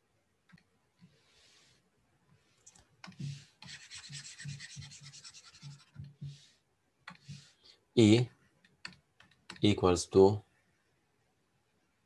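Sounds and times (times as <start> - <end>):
stylus scrubbing on pen tablet: 2.4 - 7.6.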